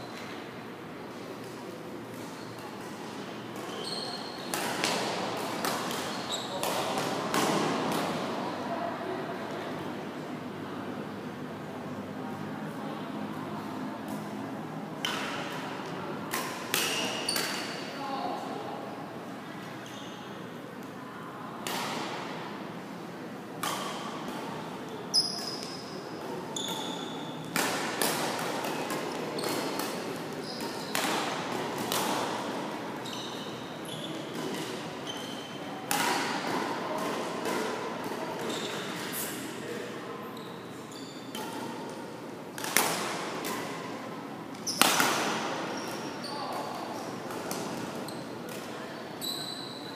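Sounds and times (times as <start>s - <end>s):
shoes squeaking on court: 2.2s - 2.9s, 3.6s - 5.0s, 5.7s - 6.9s, 19.8s - 20.4s, 25.1s - 27.5s, 29.4s - 31.0s, 33.0s - 35.7s, 38.4s - 39.4s, 40.3s - 41.8s, 44.6s - 45.0s, 45.6s - 48.4s, 49.2s - 49.9s.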